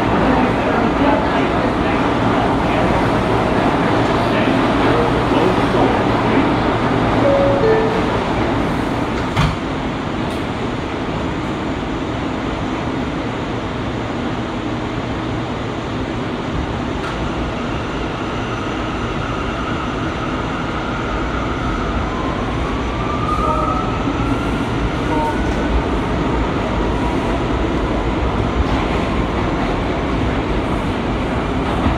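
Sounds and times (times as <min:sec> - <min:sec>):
subway car rumbling on track: 0:00.0 - 0:31.9
rising tone: 0:07.2 - 0:08.8.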